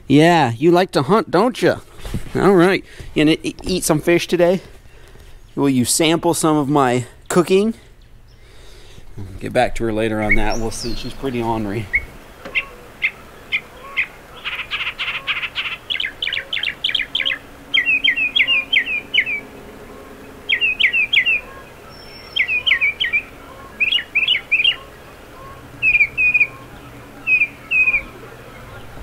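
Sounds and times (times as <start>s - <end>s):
songbird repeating down-slurred notes: 9.5s - 29.0s.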